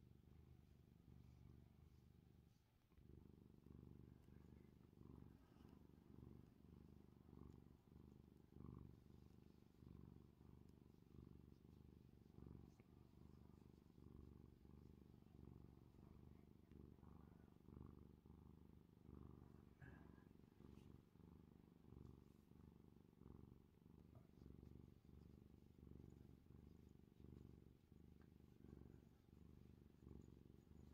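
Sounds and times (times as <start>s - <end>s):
cat purring: 0.0s - 30.9s.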